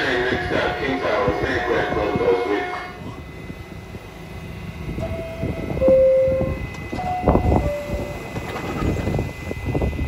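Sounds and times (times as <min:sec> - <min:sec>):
idling train rumble: 0:00.0 - 0:10.0
two-note door chimes: 0:05.0 - 0:08.3.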